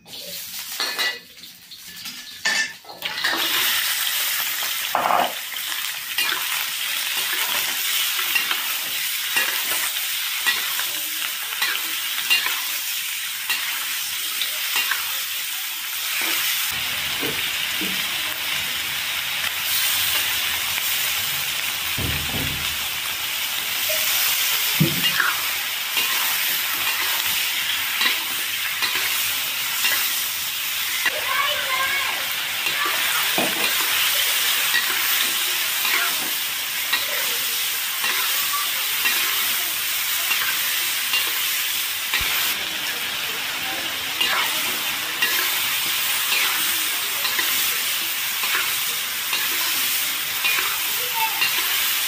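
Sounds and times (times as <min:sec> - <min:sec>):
hot oil sizzling in a wok: 0:00.0 - 0:52.0
metal spatula scraping a wok: 0:01.8 - 0:03.8.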